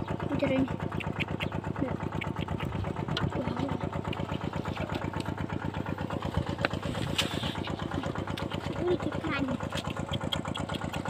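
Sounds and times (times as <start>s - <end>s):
small engine running: 0.0s - 11.0s
sharp clicks: 0.9s - 3.3s, 9.6s - 11.0s.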